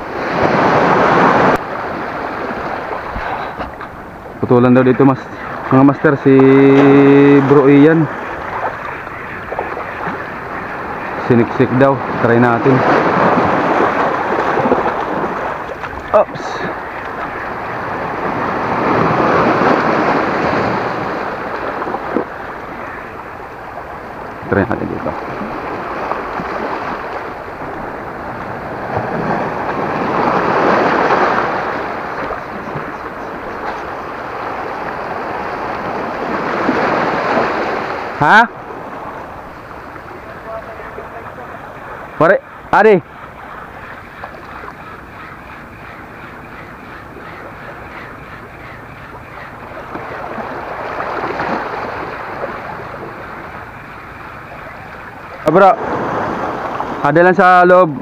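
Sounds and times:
surf washing on pebbly shore: 0.0 - 43.0, 49.4 - 58.0
wind on microphone: 12.0 - 40.2.

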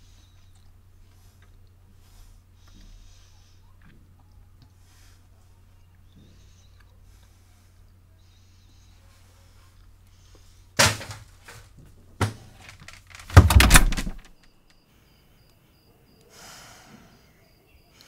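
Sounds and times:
refrigerator humming: 9.8 - 14.4
fridge door thudding shut: 13.2 - 14.3.

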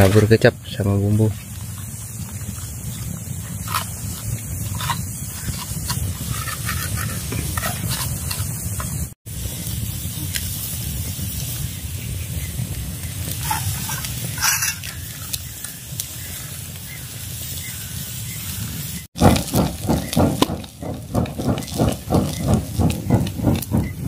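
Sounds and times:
wood fire crackling: 0.0 - 24.0
fish sizzling: 1.2 - 23.0
rhythmic whooshing of fanning: 19.2 - 24.0.

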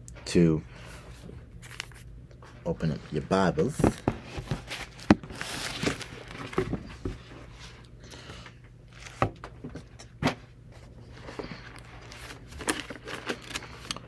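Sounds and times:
paper pages rustling: 1.5 - 2.1, 3.6 - 6.8, 11.2 - 14.0.

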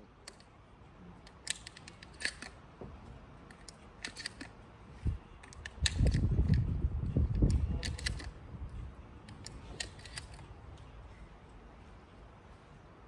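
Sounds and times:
shotgun shells clicking into magazine: 1.2 - 2.6, 3.5 - 4.5, 5.4 - 6.6, 7.3 - 8.4, 9.3 - 10.5.

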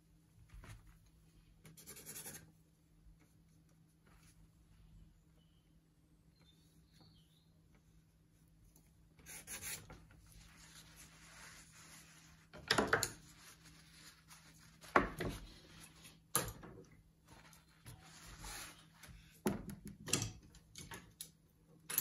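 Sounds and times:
paintbrush scraping paint: 9.2 - 16.2.

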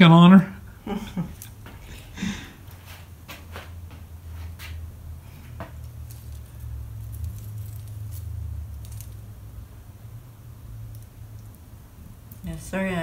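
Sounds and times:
steady low hum: 0.0 - 13.0
foil tape peeling and crinkling: 5.9 - 9.3.

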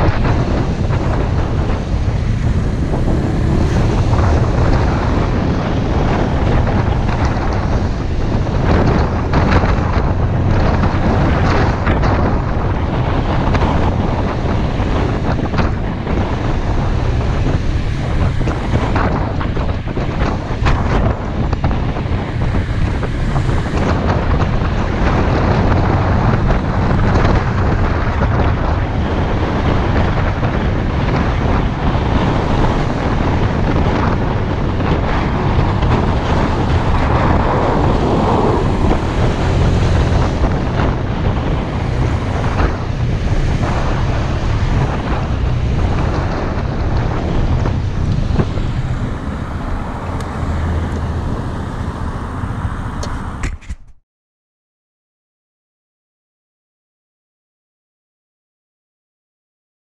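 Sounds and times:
scooter engine humming: 0.0 - 24.7, 31.7 - 53.4
wind buffeting microphone: 0.0 - 54.0.

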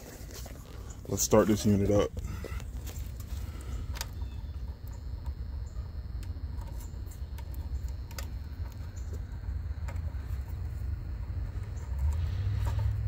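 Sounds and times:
steady low rumble: 0.0 - 13.0.

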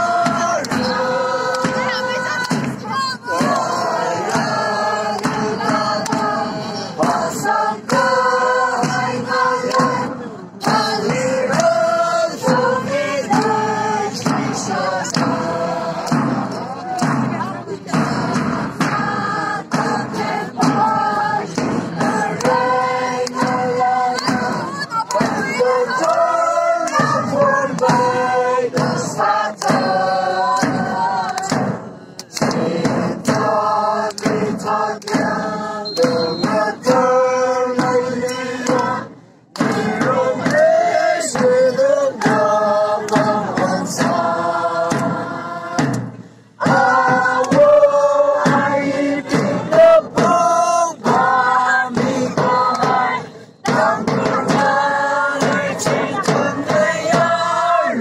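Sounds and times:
crowd singing in unison: 0.0 - 58.0
large drum beats: 0.0 - 58.0
hand claps: 0.2 - 2.8, 3.4 - 6.4, 7.8 - 13.6, 15.0 - 17.4, 21.5 - 37.0, 37.8 - 40.7, 41.3 - 44.1, 44.9 - 45.2, 46.7 - 48.6, 52.4 - 57.3.

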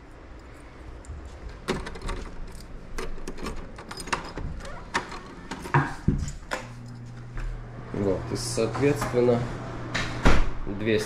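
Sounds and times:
keys clicking: 0.0 - 7.0
low steady hum: 0.0 - 11.0.

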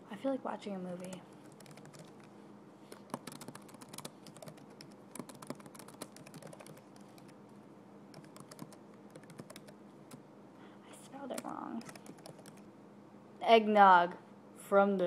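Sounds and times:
keyboard typing: 1.0 - 2.3, 2.9 - 7.4, 8.1 - 10.3, 11.2 - 12.7.

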